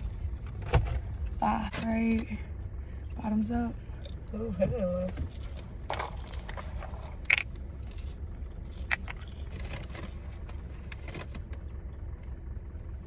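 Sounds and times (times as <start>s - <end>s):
low rumble inside car: 0.0s - 13.0s.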